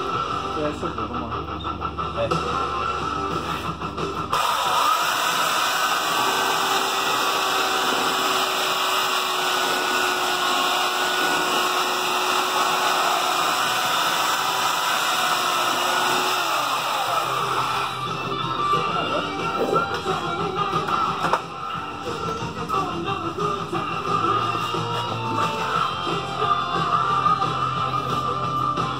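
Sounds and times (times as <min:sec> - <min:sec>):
electric belt sander sanding plastic: 0:04.4 - 0:18.0.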